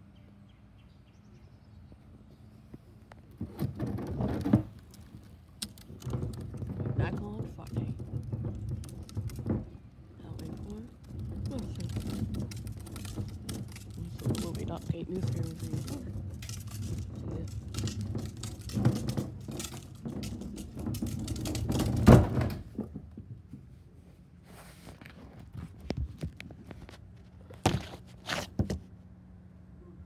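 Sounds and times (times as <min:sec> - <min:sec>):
plastic trash bin rumbling on concrete: 0:03.3 - 0:23.7.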